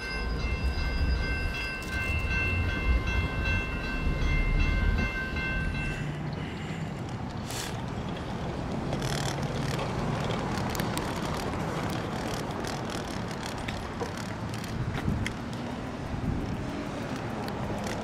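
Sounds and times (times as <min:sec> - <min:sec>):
road traffic rumble and hiss: 0:00.0 - 0:18.0
small clicks: 0:08.9 - 0:15.7, 0:16.9 - 0:18.0.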